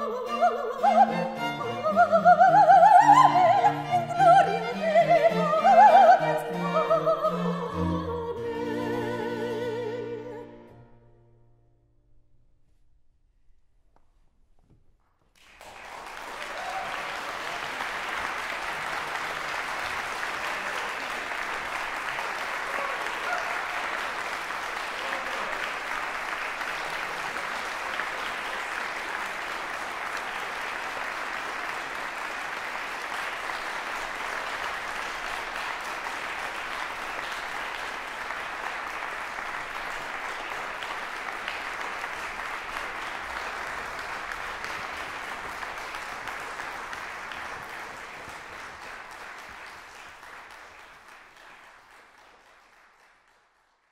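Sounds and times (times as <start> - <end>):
audience applauding: 15.3 - 53.9.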